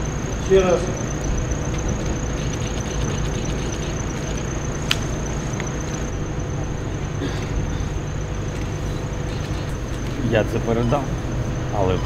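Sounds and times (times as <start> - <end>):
low background rumble: 0.0 - 12.0
thin high whine: 0.0 - 12.0
sharp clicks: 1.7 - 5.8.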